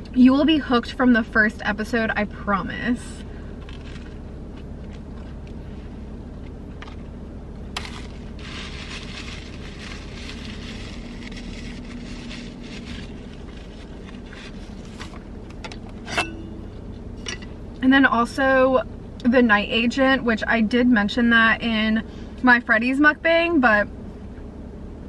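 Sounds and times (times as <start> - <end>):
low car cabin hum: 0.0 - 25.0
crackly crunching: 3.6 - 5.6, 6.4 - 15.9.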